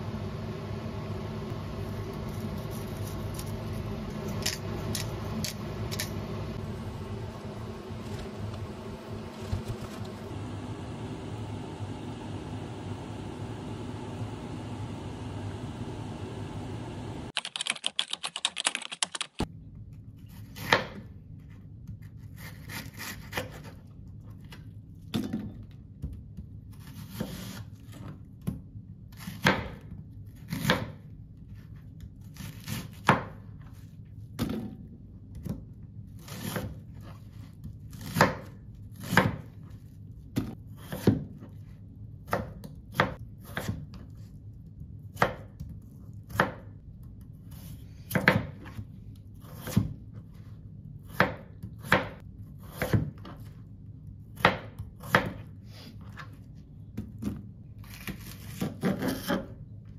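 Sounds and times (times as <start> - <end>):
steady low hum: 0.0 - 17.4
knife chopping on cutting board: 38.0 - 39.5, 40.4 - 41.5, 42.2 - 44.0, 48.1 - 48.8, 49.4 - 50.0, 51.1 - 53.5, 54.4 - 55.5.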